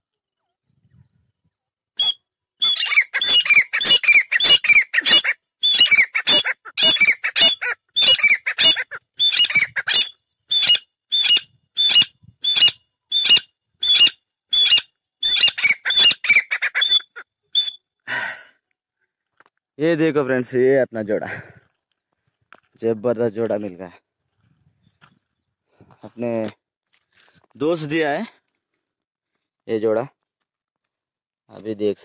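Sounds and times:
francolins calling sharply: 2.0s - 17.8s
brief rustle: 24.3s - 27.6s.

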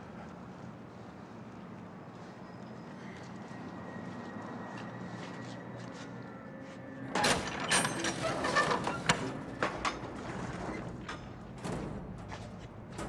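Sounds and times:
truck trailer door rolling open: 7.1s - 13.0s.

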